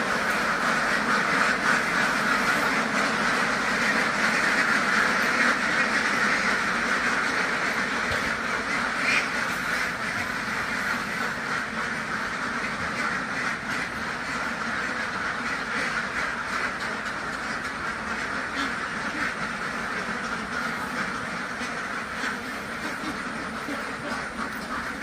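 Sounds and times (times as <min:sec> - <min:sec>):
flock of ducks quacking: 0:00.0 - 0:25.0.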